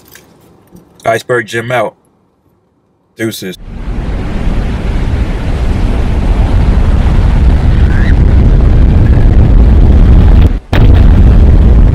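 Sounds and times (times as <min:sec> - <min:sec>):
deep rumbling noise: 0:03.6 - 0:11.9.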